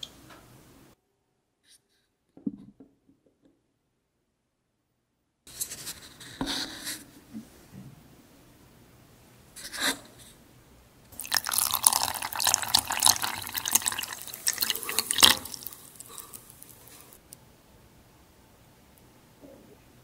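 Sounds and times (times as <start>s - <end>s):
water splashing onto sugar in saucepan: 11.2s - 17.2s.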